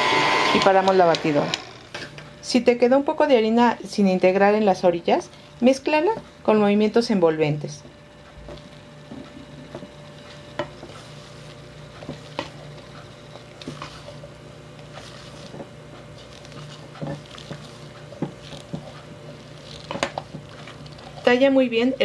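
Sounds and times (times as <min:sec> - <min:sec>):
spatula scraping metal bowl: 0:10.6 - 0:21.5.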